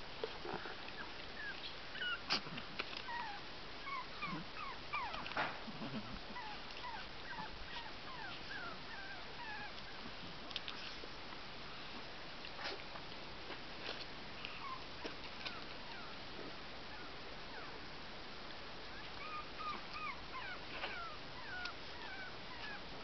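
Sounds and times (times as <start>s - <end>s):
small dogs whimpering: 0.6s - 10.0s, 14.5s - 16.2s, 16.9s - 17.8s, 18.9s - 22.8s
dog yips: 1.4s - 2.4s, 3.1s - 5.3s, 6.4s - 9.7s, 18.9s - 22.8s.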